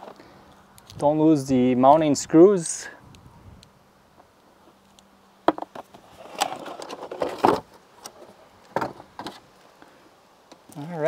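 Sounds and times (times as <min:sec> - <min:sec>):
cardboard rustling and scraping: 0:05.6 - 0:09.5.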